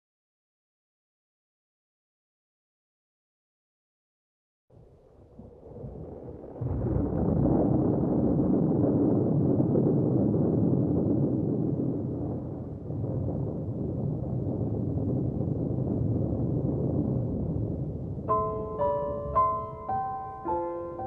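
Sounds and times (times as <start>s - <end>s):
rolling thunder rumble: 4.7s - 21.0s.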